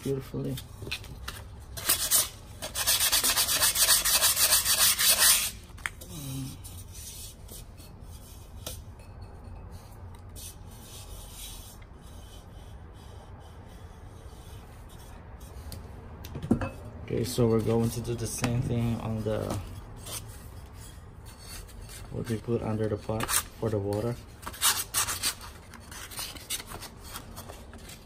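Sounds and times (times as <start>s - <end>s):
sandpaper rubbing clay pot: 1.8s - 5.6s, 6.7s - 15.7s.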